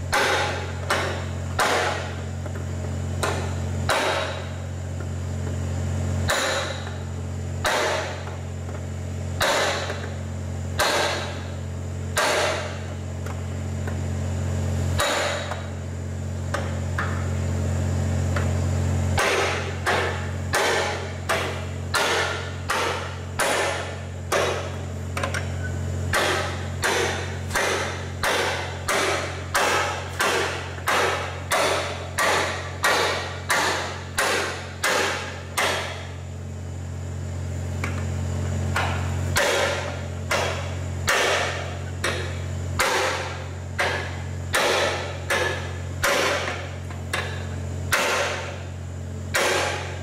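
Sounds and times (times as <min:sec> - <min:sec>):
hammer striking metal bar: 0:00.1 - 0:02.2, 0:03.2 - 0:04.6, 0:06.3 - 0:07.0, 0:07.6 - 0:08.4, 0:09.4 - 0:10.1, 0:10.8 - 0:11.5, 0:12.1 - 0:12.8, 0:15.0 - 0:15.7, 0:19.2 - 0:25.5, 0:26.1 - 0:36.1, 0:38.8 - 0:48.6, 0:49.3 - 0:50.0.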